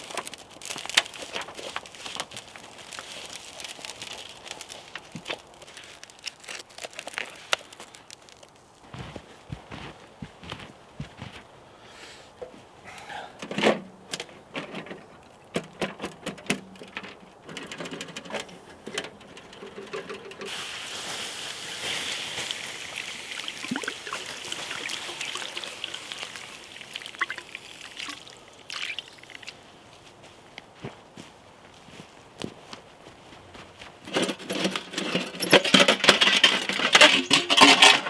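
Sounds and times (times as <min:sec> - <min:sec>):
water pouring: 0:20.5 - 0:29.6.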